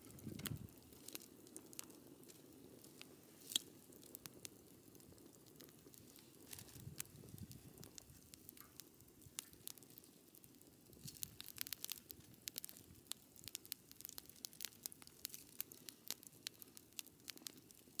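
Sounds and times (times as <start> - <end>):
wood fire crackling: 0.0 - 18.0.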